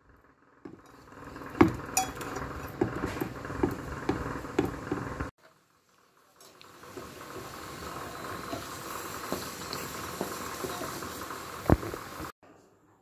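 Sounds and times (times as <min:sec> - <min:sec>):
steel bowl knocking and clinking: 0:01.6 - 0:05.0.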